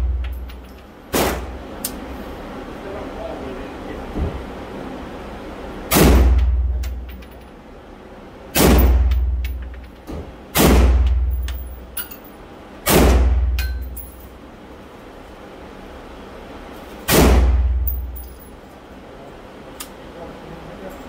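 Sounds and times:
rifle shots echoing indoors: 5.9 - 6.6, 8.5 - 9.4, 12.8 - 13.5, 17.1 - 17.9
light metallic clinks: 11.3 - 12.4, 17.8 - 18.7.

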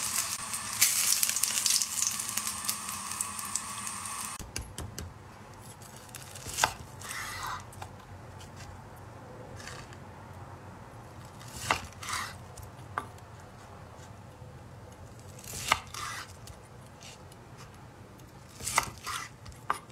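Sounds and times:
knife cutting on wooden board: 15.5 - 16.4, 18.6 - 19.8.

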